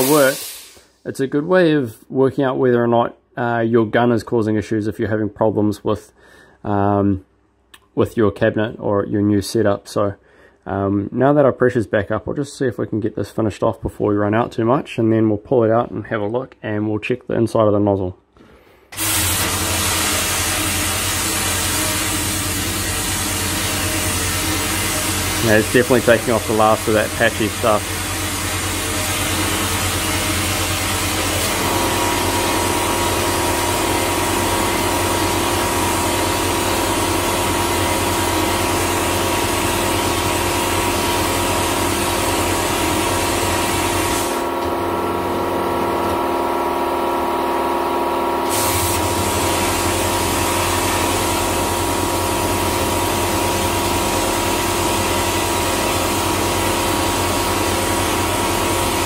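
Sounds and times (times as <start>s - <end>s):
blasting gun spray hiss: 0.0s - 1.1s, 19.0s - 31.8s, 41.4s - 44.5s, 48.4s - 53.3s
machine hum: 18.9s - 59.0s.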